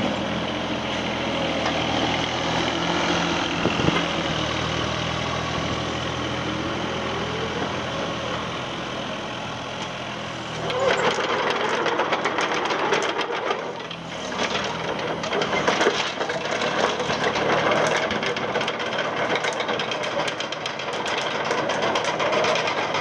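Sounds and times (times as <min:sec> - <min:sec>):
diesel engine running: 0:00.0 - 0:23.0
track undercarriage rattling: 0:10.5 - 0:23.0.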